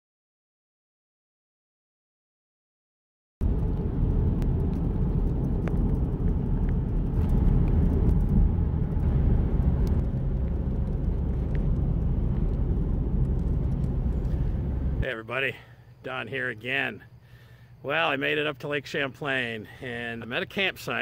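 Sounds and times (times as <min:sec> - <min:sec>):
car cabin road rumble: 0:03.4 - 0:15.7.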